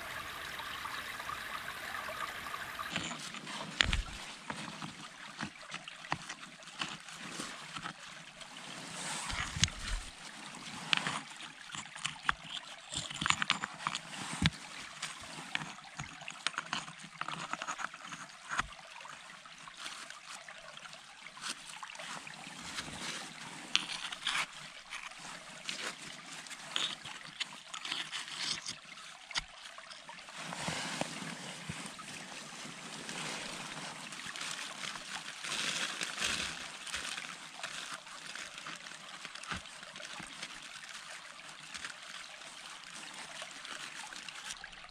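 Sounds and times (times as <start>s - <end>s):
leaf litter scraping on rock: 2.1s - 4.8s, 30.4s - 44.6s
dry leaves crackling and rustling: 32.8s - 44.6s.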